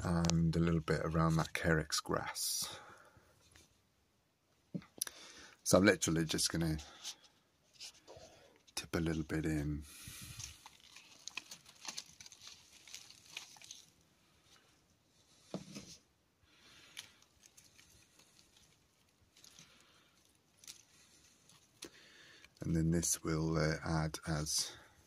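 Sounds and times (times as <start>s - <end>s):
dry mulch rustling and crackling: 9.1s - 14.0s, 16.7s - 21.8s.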